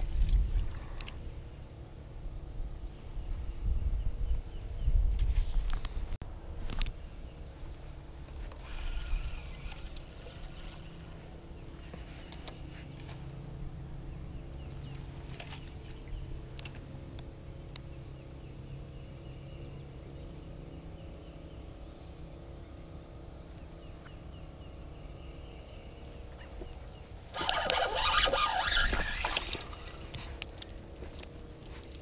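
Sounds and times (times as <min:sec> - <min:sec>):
steady low hum: 0:00.0 - 0:32.0
fishing reel scraping microphone: 0:08.5 - 0:11.2, 0:27.3 - 0:30.6.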